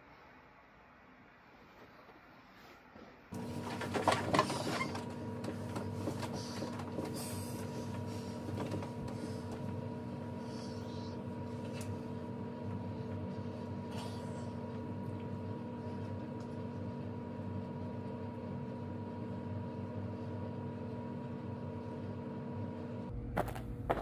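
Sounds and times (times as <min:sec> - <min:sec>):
steady electric hum with whir: 0:00.0 - 0:24.0
bedding rustling: 0:01.6 - 0:09.8.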